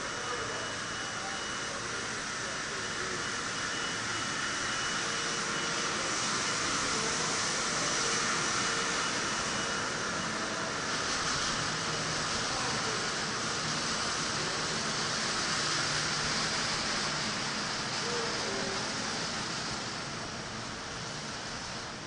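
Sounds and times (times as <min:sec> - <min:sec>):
faint steady tones: 0:00.0 - 0:22.0.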